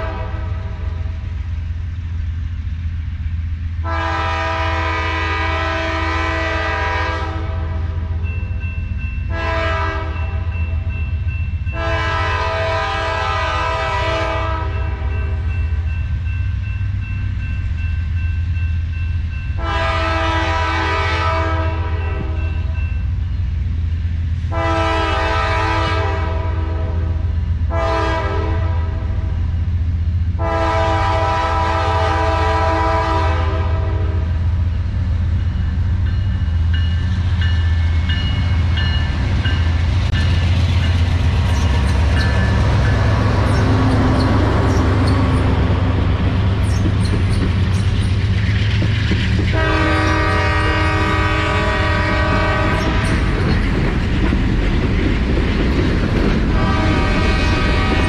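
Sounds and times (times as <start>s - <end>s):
locomotive air horn blasts: 0.0s - 0.8s, 3.8s - 8.0s, 9.3s - 10.5s, 11.7s - 15.4s, 19.6s - 22.7s, 24.5s - 29.4s, 30.4s - 34.5s, 49.5s - 53.1s, 56.5s - 58.0s
train wheels clattering on rails: 34.7s - 58.0s.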